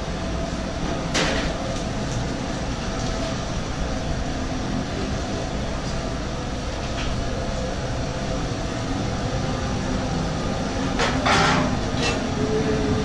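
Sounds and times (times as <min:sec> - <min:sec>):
kitchen range and ventilation rumble: 0:00.0 - 0:13.0.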